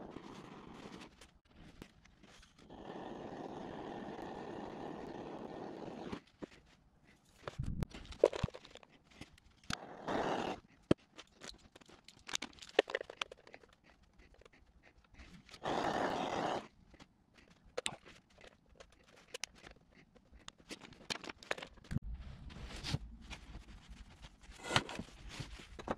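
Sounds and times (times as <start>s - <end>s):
crayons clicking against metal bowl: 10.9s - 15.2s
scraping rustles: 17.4s - 25.9s.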